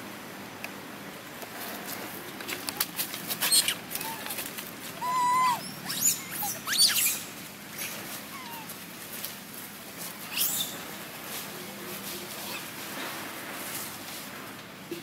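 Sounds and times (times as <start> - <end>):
light clicks and rustles: 0.6 - 5.0
baby monkey squealing: 3.4 - 4.4, 5.0 - 8.7, 10.3 - 10.8.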